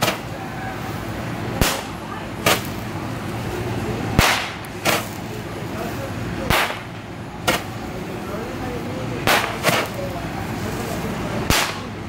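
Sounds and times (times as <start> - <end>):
roman candle firing pops: 4.2 - 5.2, 6.5 - 6.9, 9.2 - 10.0, 11.5 - 11.9.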